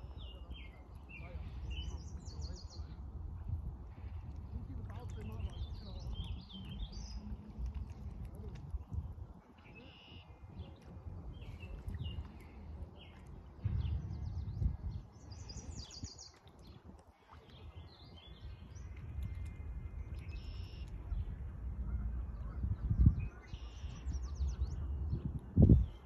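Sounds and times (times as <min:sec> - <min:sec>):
small birds chirping: 0:00.0 - 0:03.0, 0:03.9 - 0:08.9, 0:09.6 - 0:21.4
wind rumble on microphone: 0:00.0 - 0:26.0
low bump: 0:13.6 - 0:14.9.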